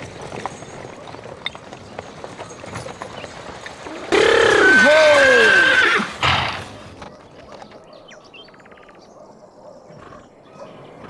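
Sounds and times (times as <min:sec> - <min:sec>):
horse whinnying: 0:03.8 - 0:06.9.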